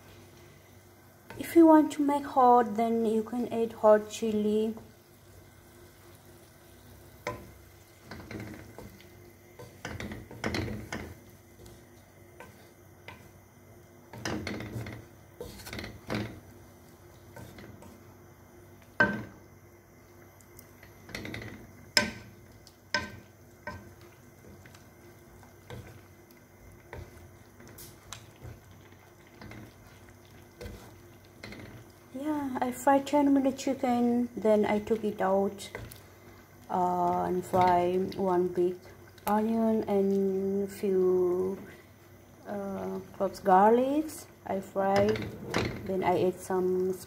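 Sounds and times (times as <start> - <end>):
wooden spatula scraping a pan: 3.1 - 18.2, 20.6 - 32.1.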